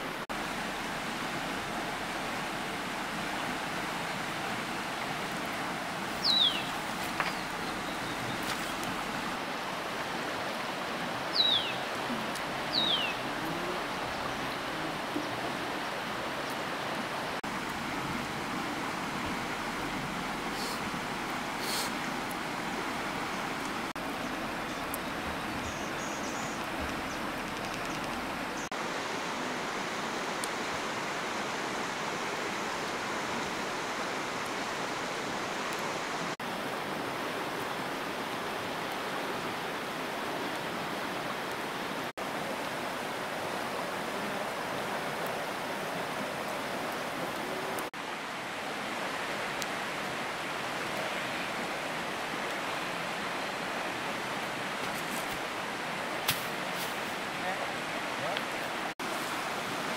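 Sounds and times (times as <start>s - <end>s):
flowing water rushing: 0.0s - 59.9s.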